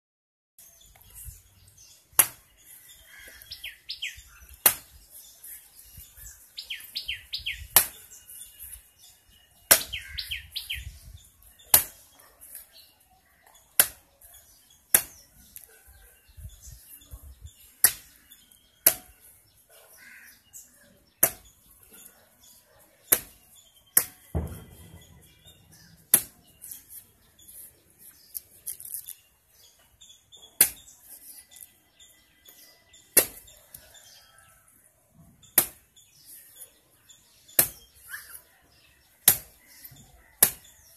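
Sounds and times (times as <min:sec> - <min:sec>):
bird chirping: 0:00.6 - 0:40.9
blade chopping coconut husk: 0:02.2 - 0:02.6, 0:04.5 - 0:04.9, 0:07.8 - 0:08.1, 0:11.6 - 0:12.0, 0:13.8 - 0:14.0, 0:14.9 - 0:15.3, 0:18.8 - 0:19.3, 0:21.2 - 0:21.5, 0:23.1 - 0:24.7, 0:26.0 - 0:26.7, 0:30.6 - 0:30.9, 0:33.1 - 0:33.5, 0:35.6 - 0:35.9, 0:37.5 - 0:38.0, 0:39.2 - 0:40.7.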